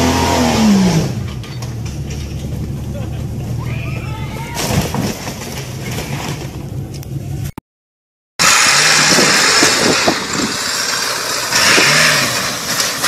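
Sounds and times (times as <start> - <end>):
truck engine revving hard: 0.0 - 1.4, 8.4 - 13.0
off-road vehicle engine running: 0.0 - 7.5, 8.4 - 13.0.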